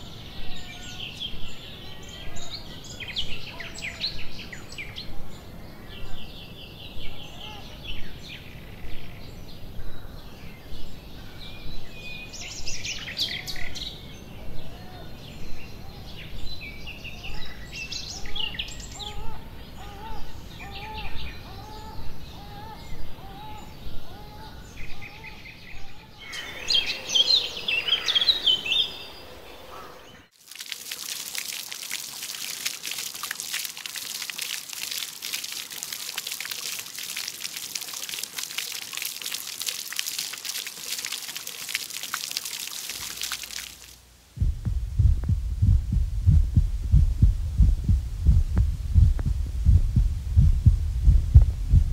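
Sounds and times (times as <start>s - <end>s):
songbirds singing and chirping: 0.0s - 43.7s
fountain water splashing: 30.3s - 44.2s.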